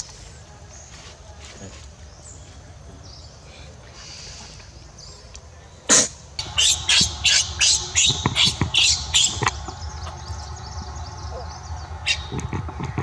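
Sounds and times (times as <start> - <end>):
infant monkey screaming: 5.9 - 10.2.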